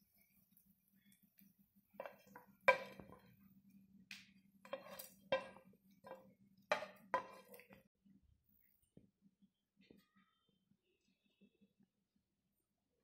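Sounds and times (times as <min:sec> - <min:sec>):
metal pan clinking: 0:02.0 - 0:03.3, 0:04.6 - 0:07.8
pan scraping: 0:02.0 - 0:03.3, 0:04.6 - 0:07.8.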